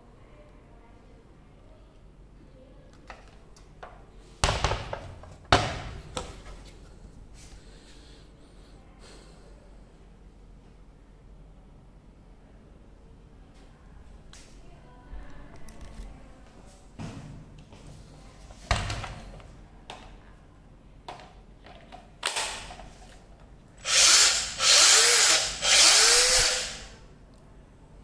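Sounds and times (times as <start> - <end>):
band saw motor running: 23.8 - 26.9.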